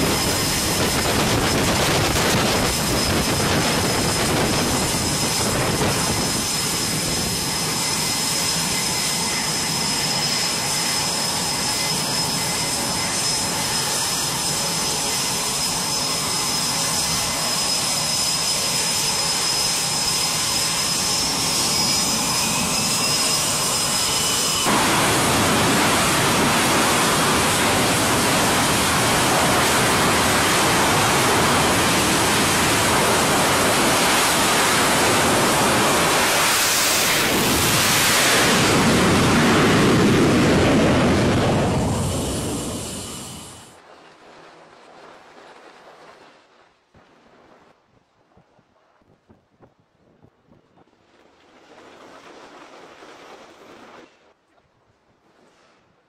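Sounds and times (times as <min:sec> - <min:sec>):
jet exhaust roar: 0:00.0 - 0:43.8
jet engine turbine whine: 0:00.0 - 0:43.9
rushing noise: 0:17.4 - 0:43.8.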